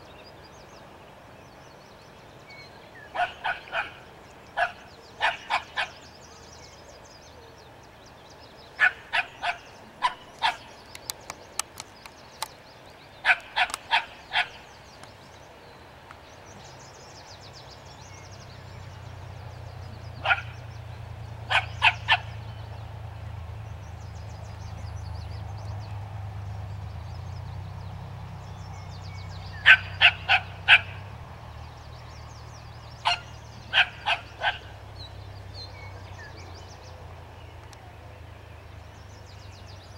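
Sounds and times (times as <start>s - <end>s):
small dog barking: 3.2s - 4.0s, 4.6s - 6.0s, 8.8s - 10.7s, 13.2s - 14.6s, 20.2s - 20.6s, 21.5s - 22.4s, 29.6s - 31.0s, 33.0s - 34.7s.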